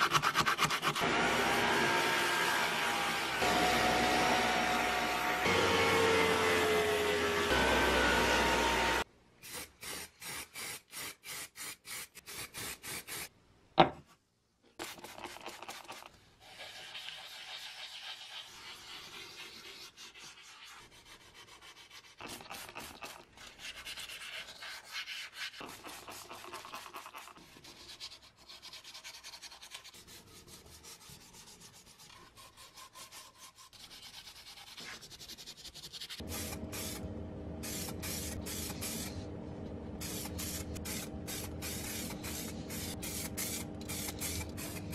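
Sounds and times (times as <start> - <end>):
electric orbital sander running: 1.0 - 9.0
sandpaper rubbing on metal: 14.9 - 37.0, 40.0 - 44.9.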